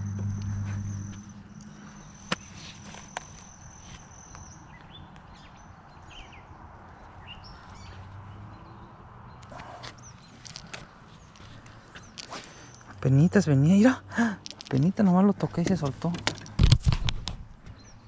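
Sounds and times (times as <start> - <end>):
high-pitched whine: 0.0 - 4.4
bird chirps: 0.0 - 13.6.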